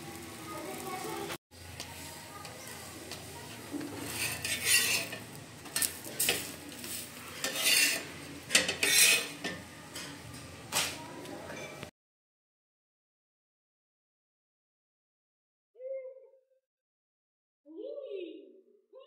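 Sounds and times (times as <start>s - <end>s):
metal spatula scraping a griddle: 3.5s - 10.2s.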